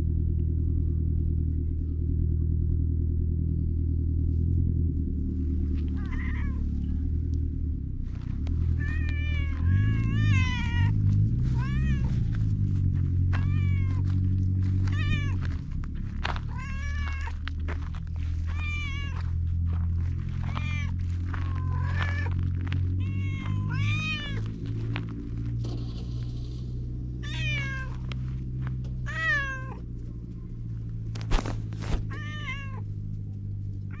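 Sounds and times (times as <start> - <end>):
steady low hum: 0.0 - 34.0
cat meowing: 5.9 - 6.7, 8.7 - 12.2, 13.3 - 15.5, 16.4 - 17.5, 18.3 - 24.5, 27.2 - 28.1, 29.0 - 29.8, 32.0 - 32.8.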